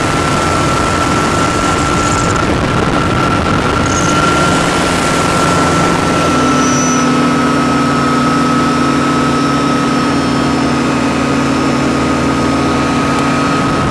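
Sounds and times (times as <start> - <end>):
air rushing past: 0.0 - 8.5
aircraft engine and propeller droning: 0.0 - 13.9.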